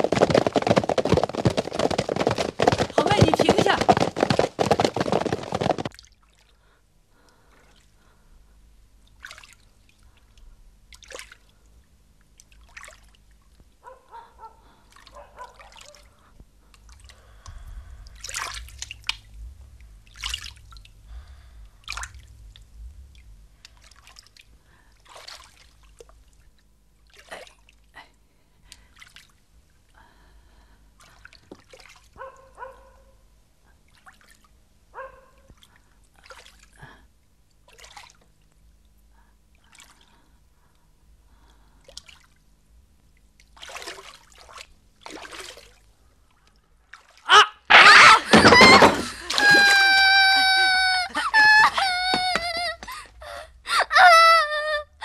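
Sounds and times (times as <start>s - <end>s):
horses galloping: 0.0s - 6.0s, 47.7s - 53.0s
bathwater dripping and splashing: 23.1s - 26.5s, 43.4s - 47.2s.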